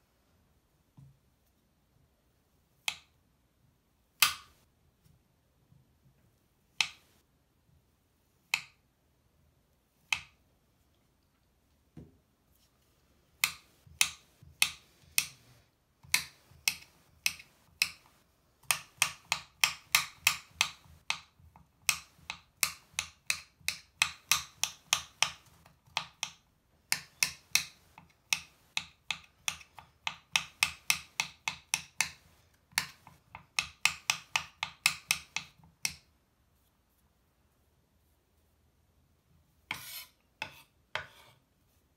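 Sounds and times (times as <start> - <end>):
knife chopping on cutting board: 39.7 - 41.4.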